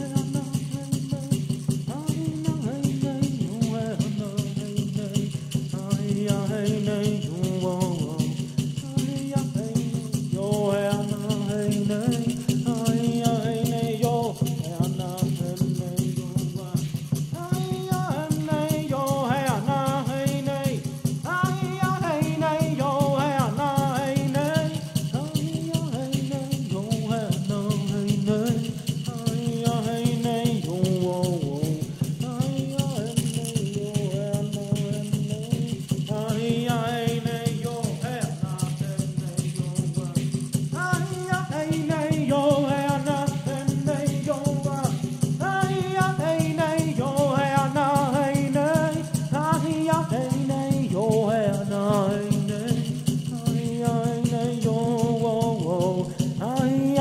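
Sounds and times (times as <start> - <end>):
person chanting: 0.0 - 16.7, 17.3 - 36.8
rattle shaking: 0.0 - 57.0.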